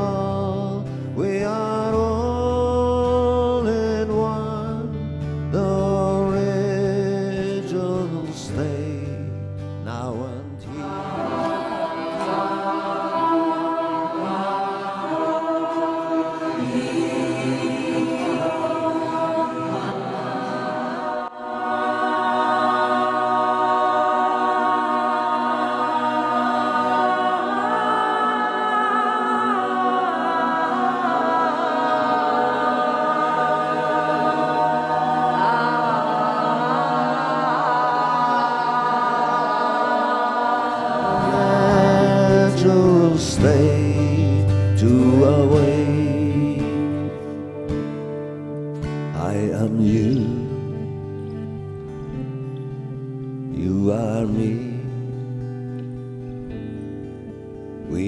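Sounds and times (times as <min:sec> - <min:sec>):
group of voices chanting: 0:10.8 - 0:43.2.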